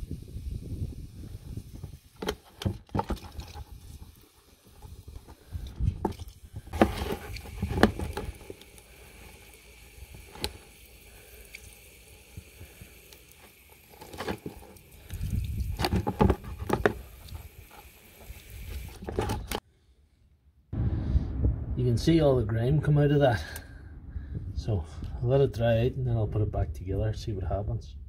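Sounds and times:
knocks and clatter of parts: 2.2 - 3.8.

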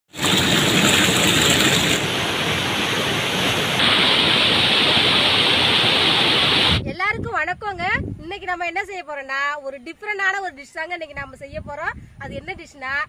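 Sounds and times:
water cascading into pool: 0.1 - 6.8.

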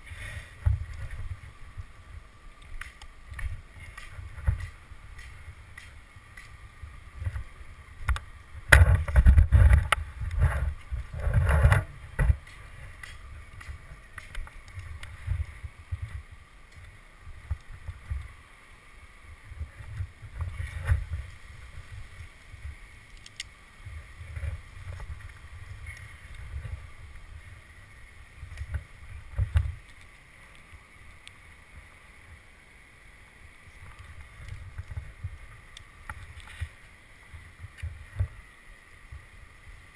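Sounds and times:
climbing spikes thumping on bark: 2.5 - 18.3.

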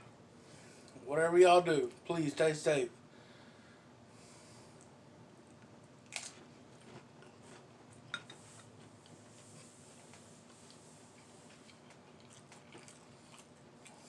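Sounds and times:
faint chewing of noodles: 4.5 - 14.0.

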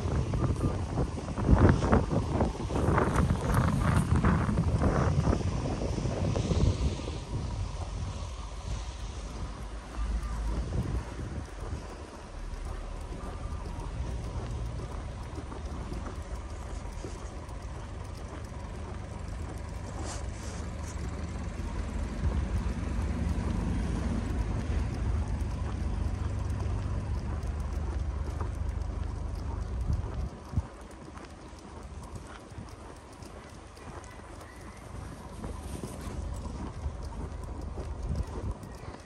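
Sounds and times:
footsteps crunching on snow: 7.8 - 24.2, 33.2 - 39.0.

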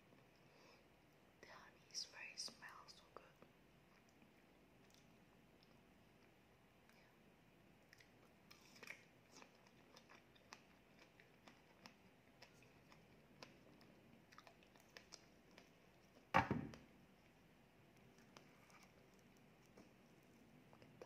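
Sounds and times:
chewing: 3.9 - 7.1, 7.8 - 16.3, 17.9 - 21.0
sudden knock: 16.4 - 16.7.

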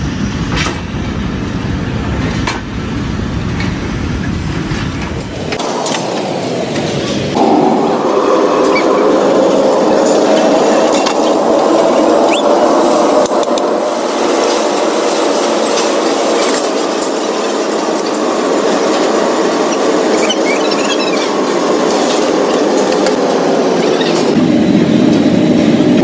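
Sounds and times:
workshop machinery running: 0.0 - 26.0.

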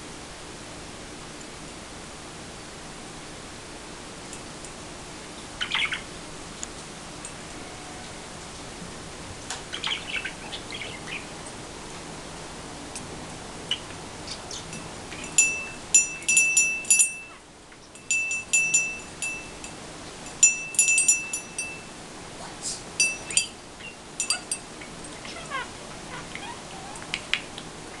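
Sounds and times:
small metal bell ringing: 14.7 - 17.4, 18.0 - 22.0, 23.0 - 25.6.

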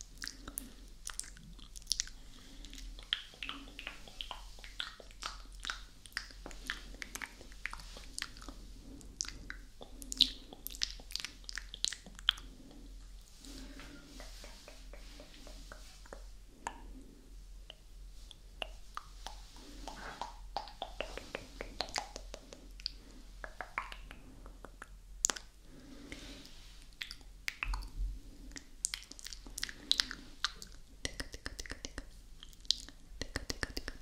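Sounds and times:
tongue clicks: 0.1 - 8.6, 14.2 - 16.9, 17.7 - 25.6, 26.9 - 34.0
wet lip smacks: 0.1 - 12.8, 13.5 - 16.9, 17.7 - 25.6, 26.9 - 34.0.

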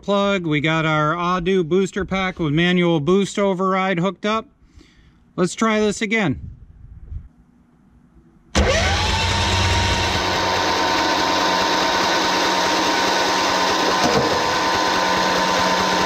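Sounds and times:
electric starter cranking engine: 8.6 - 16.0.

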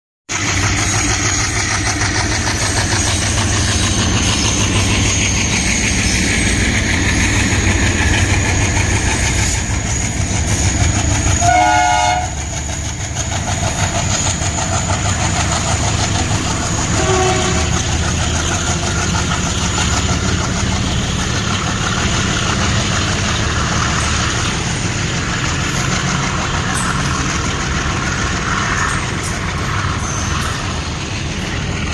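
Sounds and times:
diesel locomotives chugging: 0.3 - 31.9
train wheels clattering on rails: 0.3 - 31.9
train horn blast: 11.3 - 12.5, 16.9 - 17.9.

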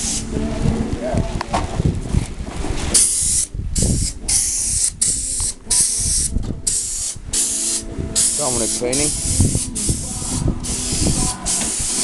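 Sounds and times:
paint spray gun hissing: 3.0 - 12.0.

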